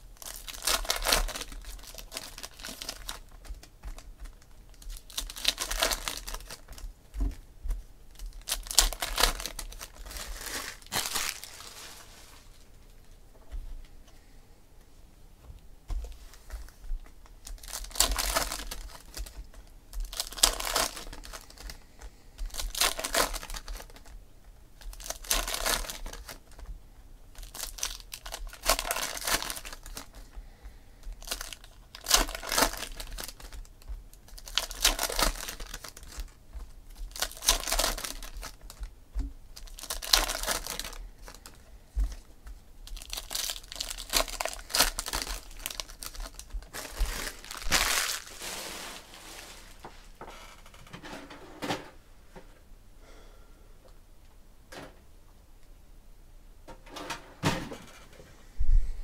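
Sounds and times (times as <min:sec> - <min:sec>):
card wrappers tearing and crinkling: 0:00.2 - 0:06.9, 0:08.1 - 0:12.4, 0:17.4 - 0:21.8, 0:22.4 - 0:24.2, 0:24.8 - 0:26.7, 0:27.4 - 0:30.2, 0:31.0 - 0:38.8, 0:39.6 - 0:42.2, 0:42.8 - 0:49.8.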